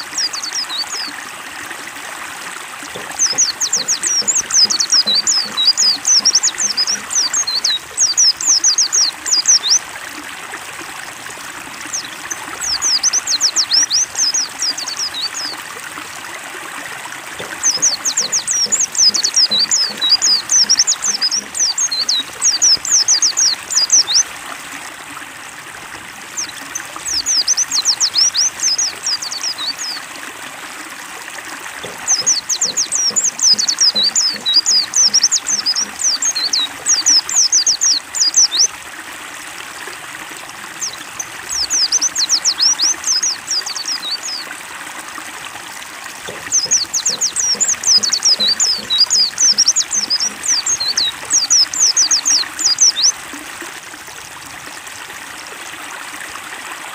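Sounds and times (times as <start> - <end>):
running water trickling: 0.0 - 56.9
bird chirping rapidly: 3.0 - 9.8, 17.4 - 24.3, 31.8 - 38.6, 46.3 - 53.1.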